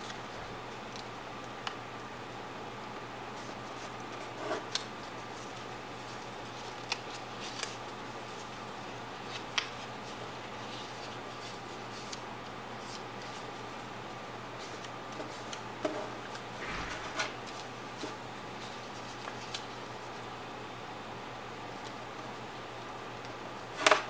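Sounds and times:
faint hum and hiss: 0.0s - 24.0s
paper being folded: 3.4s - 8.6s, 9.2s - 12.2s, 12.8s - 13.7s.

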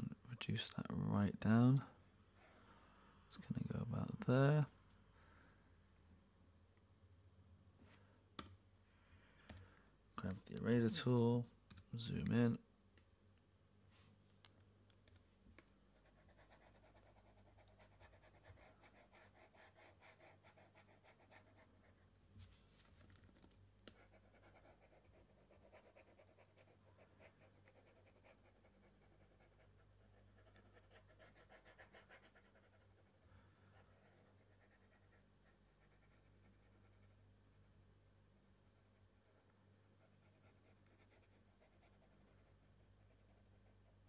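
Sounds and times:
faint mains hum: 0.0s - 44.0s.

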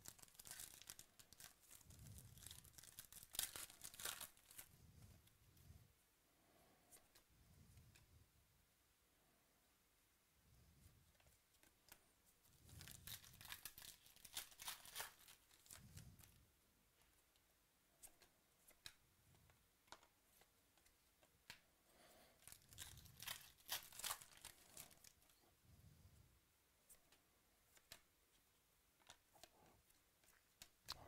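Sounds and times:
wrappers tearing and crinkling: 0.0s - 4.7s, 12.7s - 15.8s, 22.4s - 25.2s.

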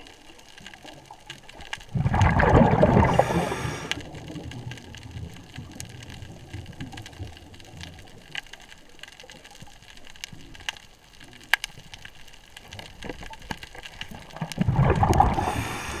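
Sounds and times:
underwater clicks and crackles: 0.0s - 16.0s
loud bubbling rush: 1.9s - 4.2s, 14.3s - 16.0s.

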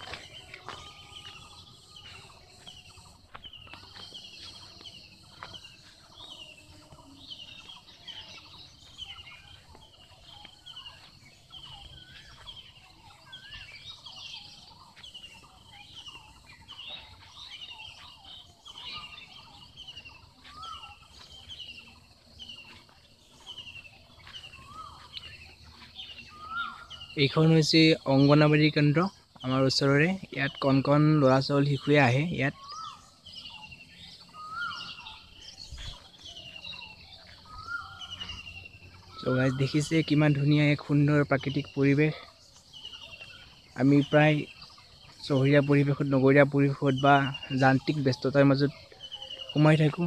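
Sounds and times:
bird chirping: 0.0s - 50.0s
faint bird calls: 0.0s - 50.0s.

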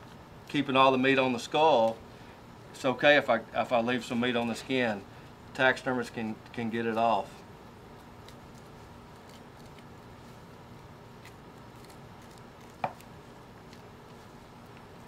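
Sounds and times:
low room noise: 0.0s - 15.0s.

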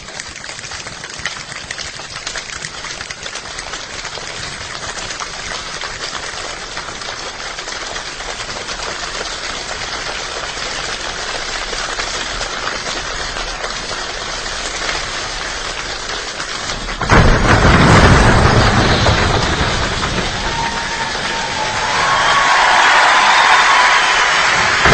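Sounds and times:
hand percussion patter: 0.0s - 11.7s
deep body percussion surge: 16.8s - 22.4s, 24.5s - 24.9s.

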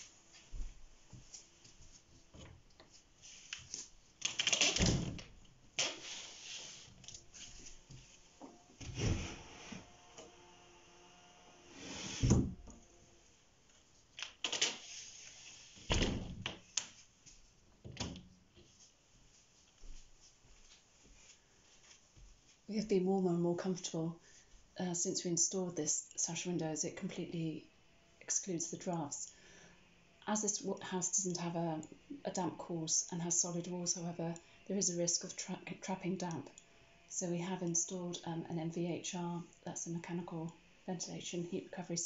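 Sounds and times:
window sliding scrapes: 5.9s - 7.8s, 8.8s - 10.1s, 11.5s - 12.6s.

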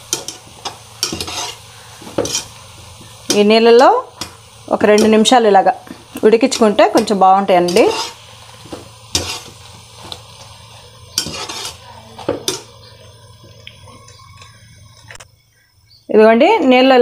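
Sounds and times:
skimmer scraping pan: 0.0s - 2.6s, 3.2s - 12.7s
water boiling and bubbling: 0.0s - 15.2s.

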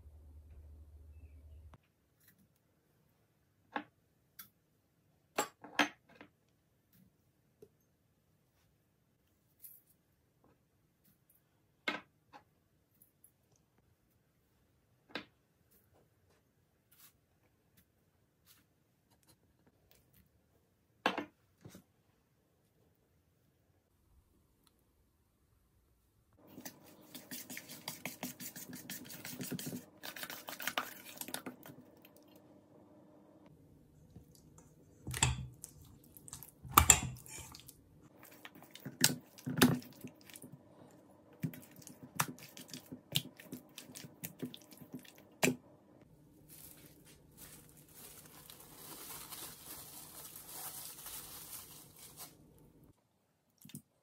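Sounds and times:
metal spoon scraping bowl: 36.7s - 37.7s.

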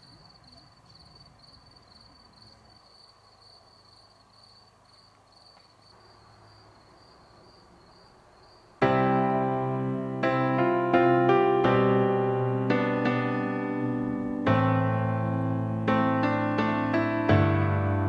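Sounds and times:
crickets chirping: 0.0s - 9.0s
piano music: 8.8s - 18.0s.

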